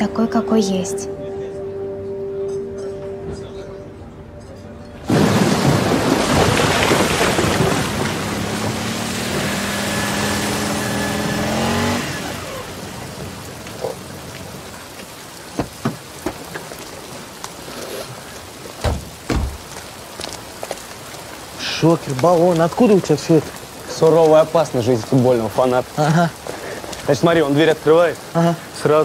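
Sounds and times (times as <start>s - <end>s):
car engine humming: 0.0s - 20.2s
heavy rain on a car: 5.1s - 29.0s
sharp knocks: 15.5s - 16.5s, 18.8s - 19.8s.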